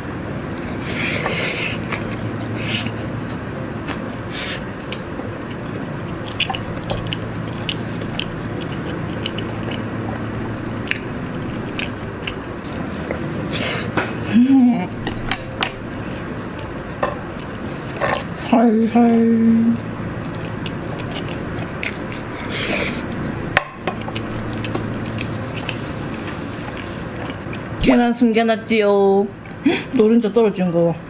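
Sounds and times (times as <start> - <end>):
chewing noodles: 0.4 - 14.4, 19.7 - 27.8.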